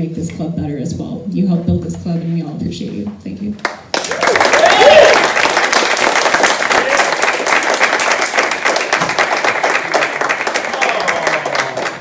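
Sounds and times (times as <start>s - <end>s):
audience applauding: 3.9s - 12.0s.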